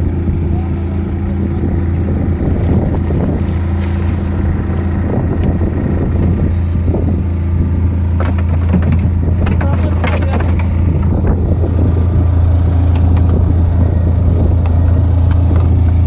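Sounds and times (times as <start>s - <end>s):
boat engine humming: 0.0s - 16.0s
water splashes: 2.4s - 7.0s.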